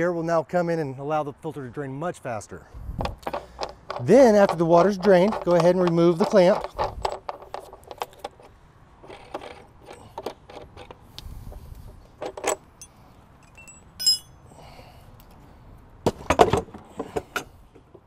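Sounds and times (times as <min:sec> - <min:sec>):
plastic clicks and scrapes: 0:03.0 - 0:11.0
metallic clink: 0:12.4 - 0:14.4.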